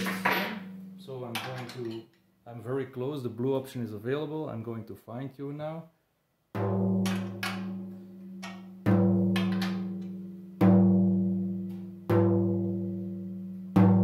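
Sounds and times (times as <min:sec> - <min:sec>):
tom drum struck with stick: 0:06.6 - 0:13.1, 0:13.7 - 0:14.0.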